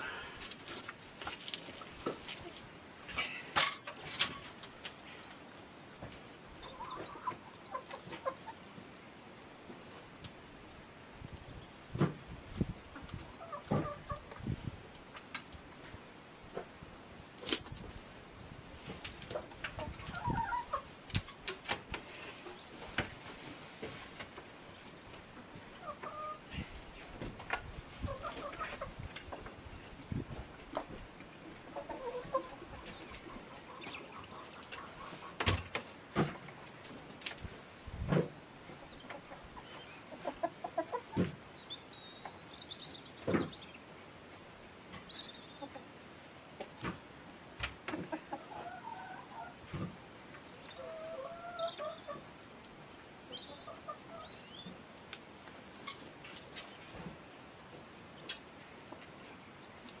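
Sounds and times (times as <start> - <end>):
hens clucking softly: 0.0 - 9.0, 12.5 - 16.7, 18.8 - 24.4, 25.1 - 37.1, 38.6 - 41.6, 44.9 - 46.0, 47.8 - 52.4, 53.1 - 54.8.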